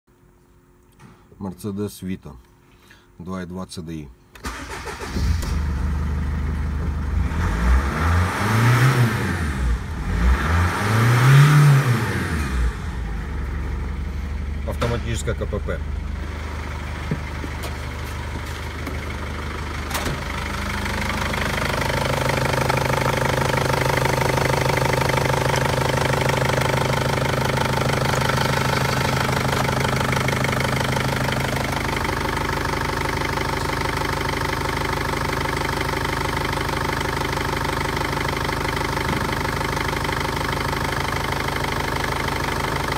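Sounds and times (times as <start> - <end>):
diesel engine idling: 12.1 - 42.9.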